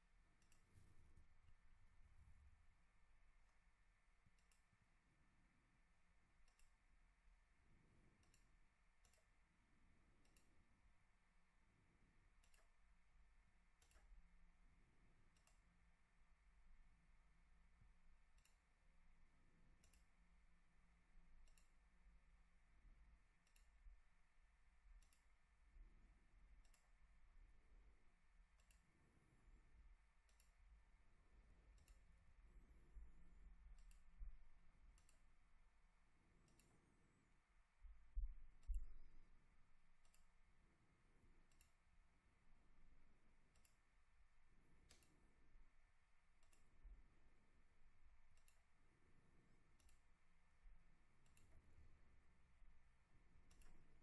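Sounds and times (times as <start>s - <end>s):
computer mouse clicks: 0.4s - 1.0s, 4.4s - 4.7s, 6.5s - 6.8s, 8.2s - 9.3s, 12.4s - 12.8s, 13.8s - 14.1s, 15.3s - 15.6s, 18.4s - 18.6s, 19.8s - 20.1s, 21.4s - 21.8s, 23.4s - 23.7s, 25.0s - 25.3s, 26.6s - 26.9s, 28.6s - 28.9s, 30.3s - 30.6s, 31.8s - 32.0s, 33.7s - 34.1s, 35.0s - 35.2s, 36.3s - 37.2s, 40.0s - 40.3s, 41.5s - 41.8s, 43.5s - 43.8s, 44.8s - 45.3s, 46.4s - 46.7s, 48.4s - 48.6s, 49.8s - 50.0s, 51.2s - 51.6s, 53.4s - 54.0s.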